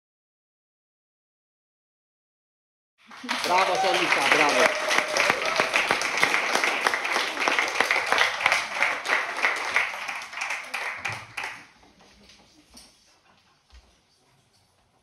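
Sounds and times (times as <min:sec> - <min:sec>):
audience applauding: 0:03.0 - 0:11.8.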